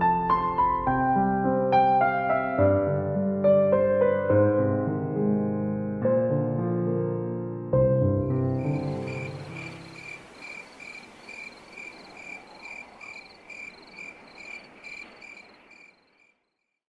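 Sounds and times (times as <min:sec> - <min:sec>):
piano chord: 0:00.0 - 0:10.3
faint night hiss: 0:08.4 - 0:16.4
cricket chirping: 0:08.4 - 0:16.8.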